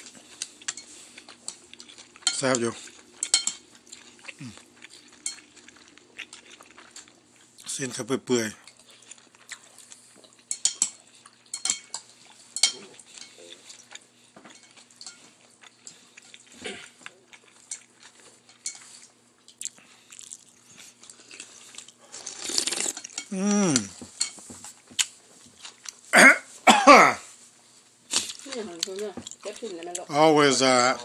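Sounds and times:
spoon and chopsticks clinking bowl: 0:03.2 - 0:03.6, 0:05.2 - 0:05.6, 0:10.5 - 0:13.8, 0:18.5 - 0:18.9
short vocal sound: 0:23.3 - 0:23.9.

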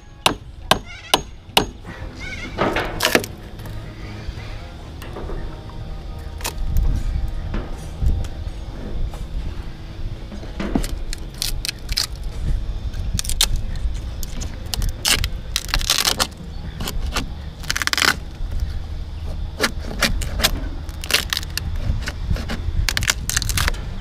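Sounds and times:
hand tool digging rotten wood: 0:02.9 - 0:03.8, 0:19.6 - 0:23.8.

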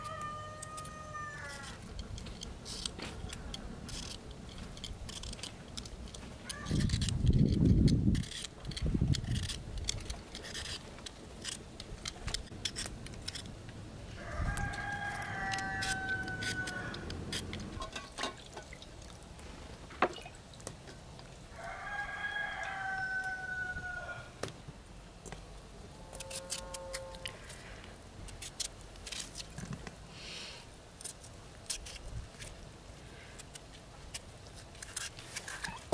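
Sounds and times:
rooster crowing: 0:00.0 - 0:01.8, 0:14.2 - 0:17.1, 0:21.6 - 0:24.4.

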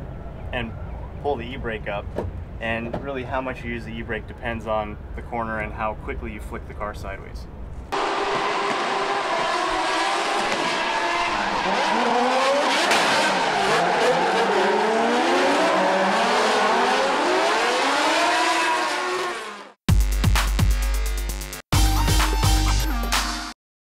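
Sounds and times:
car engines revving: 0:07.9 - 0:19.8.

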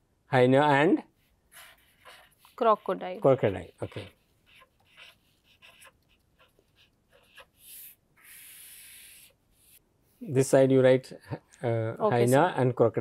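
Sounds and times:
marker pen scratching on paper: 0:01.2 - 0:10.2.

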